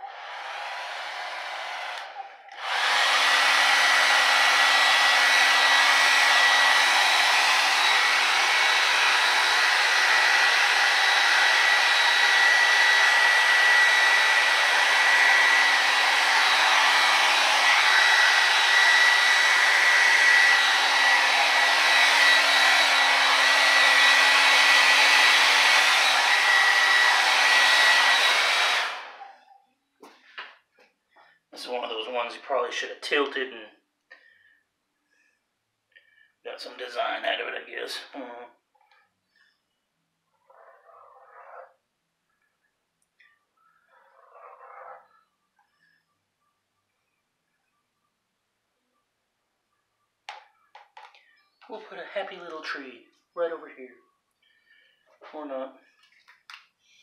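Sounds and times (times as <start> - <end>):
hair dryer running: 0.0 - 29.3.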